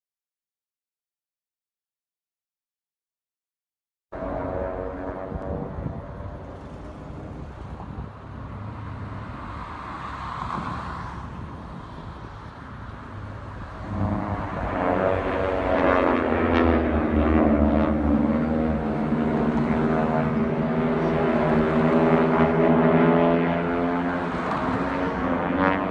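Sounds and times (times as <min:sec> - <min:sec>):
propeller aircraft engines droning: 0:04.2 - 0:25.9.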